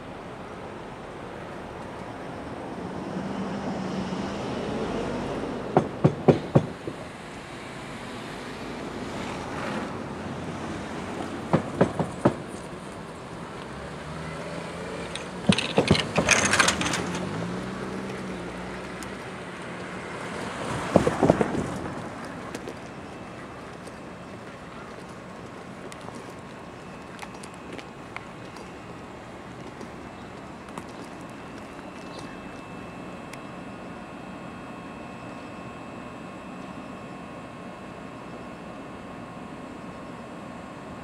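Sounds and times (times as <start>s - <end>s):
train wheels clacking over rail joints: 5.7s - 7.0s, 11.4s - 12.7s, 15.0s - 17.5s
steady low hum: 14.6s - 41.0s.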